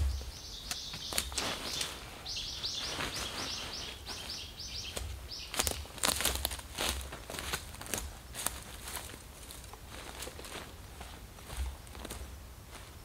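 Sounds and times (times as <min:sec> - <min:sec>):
bird chirping rapidly: 0:00.0 - 0:05.9.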